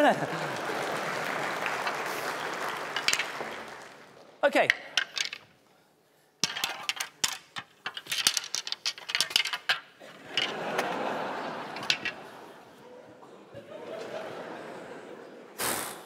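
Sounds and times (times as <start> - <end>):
audience noise: 0.0 - 4.5, 10.0 - 16.0
snooker balls clicking: 1.8 - 5.5, 6.4 - 12.5.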